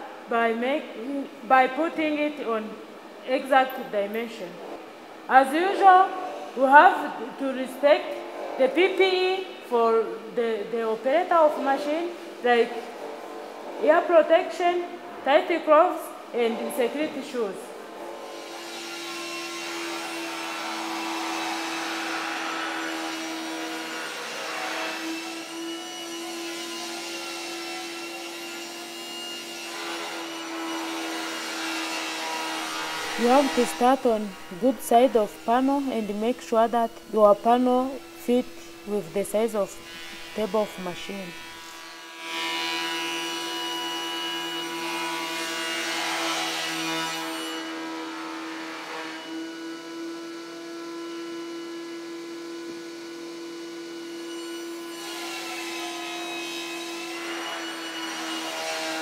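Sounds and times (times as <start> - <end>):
thickness planer whining: 18.3 - 59.0.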